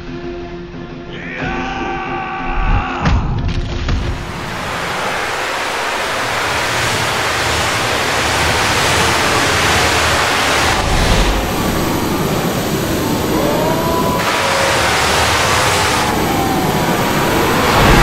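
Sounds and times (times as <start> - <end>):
loud rushing wind: 4.1 - 18.0
deep rumble: 8.4 - 15.2, 15.9 - 18.0.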